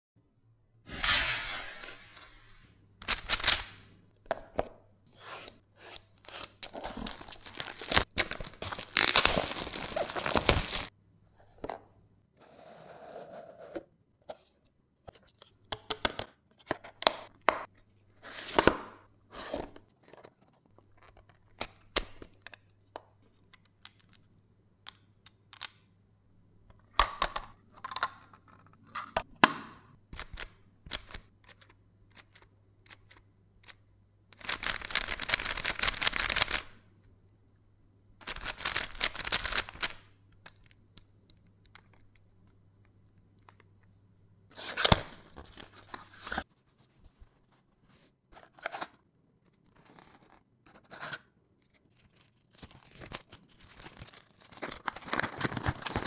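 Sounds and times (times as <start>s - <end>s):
packaging tearing and crinkling: 6.2s - 10.9s, 52.3s - 56.0s.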